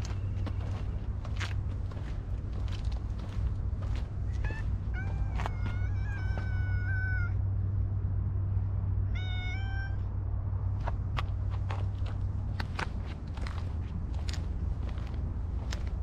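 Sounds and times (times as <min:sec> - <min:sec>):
cat meowing: 0:04.4 - 0:07.4, 0:09.1 - 0:10.1.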